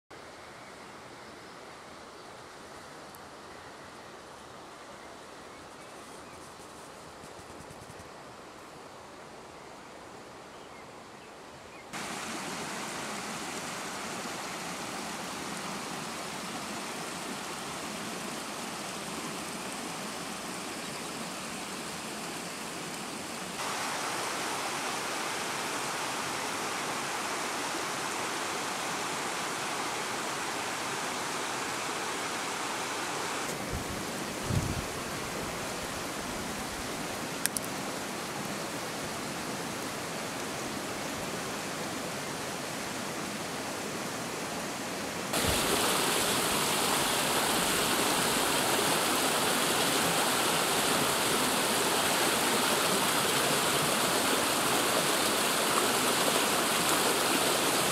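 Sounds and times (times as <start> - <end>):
stream rushing over rocks: 11.9 - 57.9.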